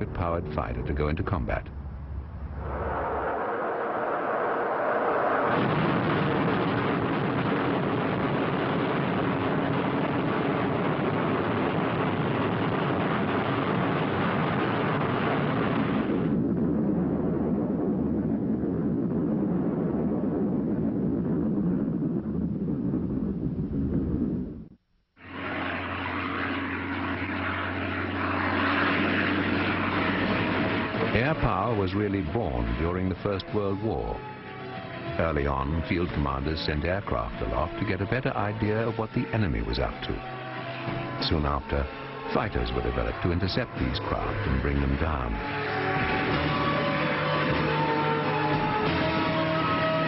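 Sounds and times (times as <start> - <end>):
propeller plane engine droning: 0.0 - 50.0
rocket motor roaring: 2.2 - 16.7, 25.2 - 31.8.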